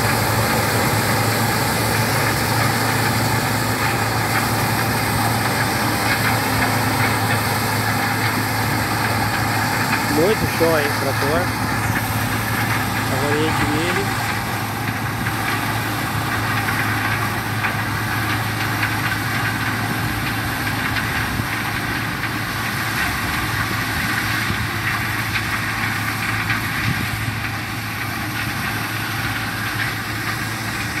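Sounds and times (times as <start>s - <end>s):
tractor diesel engine under load: 0.0s - 31.0s
corn stalks crackling being cut: 9.9s - 14.3s.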